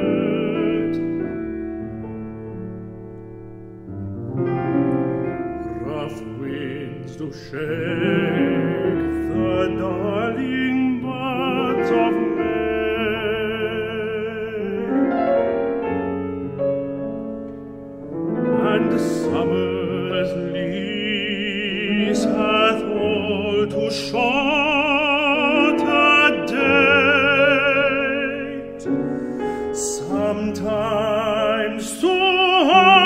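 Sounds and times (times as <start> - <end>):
piano accompaniment: 0.0 - 33.0
tenor singing operatic style: 0.0 - 33.0.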